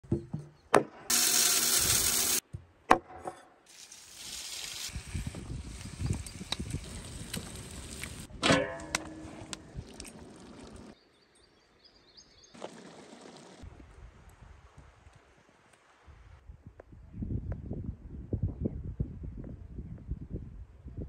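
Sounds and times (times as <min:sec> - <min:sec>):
metallic pot clang: 0:08.4 - 0:09.2.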